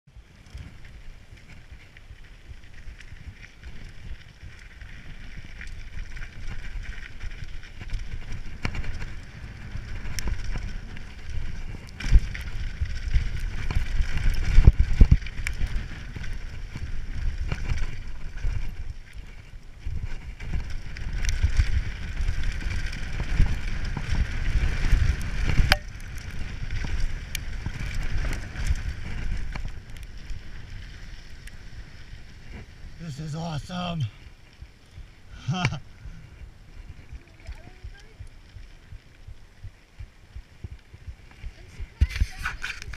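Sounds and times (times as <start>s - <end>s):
bike tyres crunching on gravel: 0.1s - 42.9s
wind buffeting microphone: 0.1s - 42.9s.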